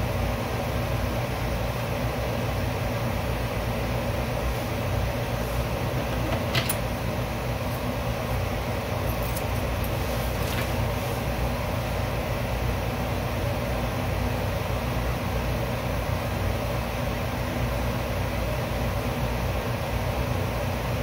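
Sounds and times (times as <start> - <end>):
low hum and hiss: 0.0 - 21.0.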